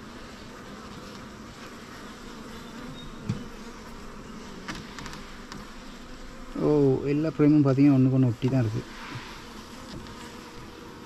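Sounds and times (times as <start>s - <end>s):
bees buzzing: 0.0s - 11.0s
brief thump: 3.2s - 3.5s.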